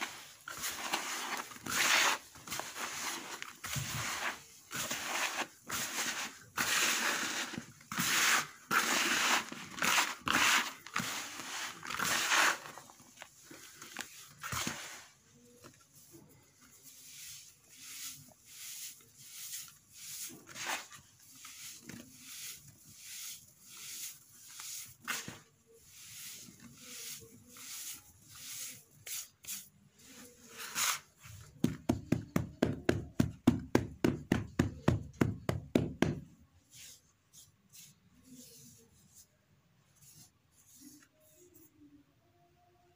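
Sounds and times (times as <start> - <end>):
hands rubbing gritty sand mix: 0.0 - 12.9, 13.7 - 31.2.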